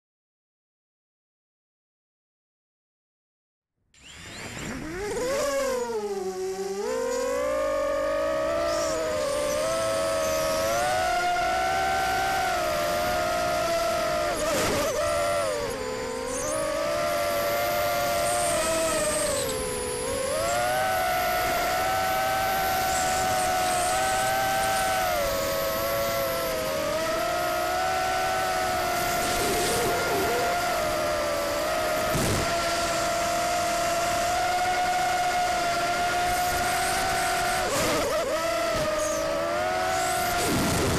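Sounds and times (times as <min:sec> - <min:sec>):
quadcopter motors whining: 0:04.0 - 0:40.9.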